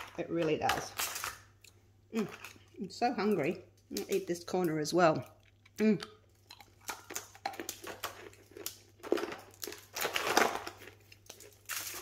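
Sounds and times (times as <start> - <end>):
brittle snapping and crackling: 0.0 - 1.7, 6.3 - 12.0
crinkling foil: 6.5 - 12.0.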